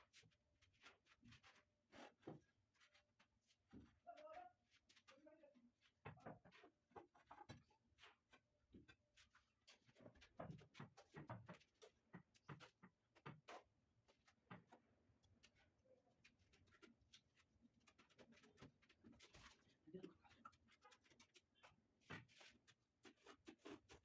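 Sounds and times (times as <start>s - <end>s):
taps and scrapes on stone slab: 6.2s - 24.0s.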